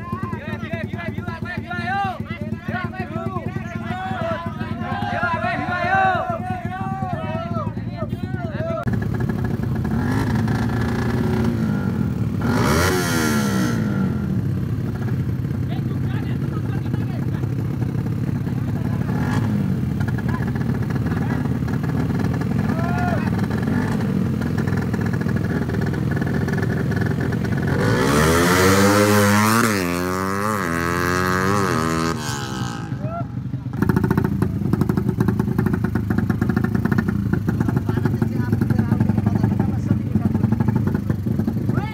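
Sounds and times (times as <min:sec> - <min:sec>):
motorcycle engines revving: 0:00.0 - 0:41.9.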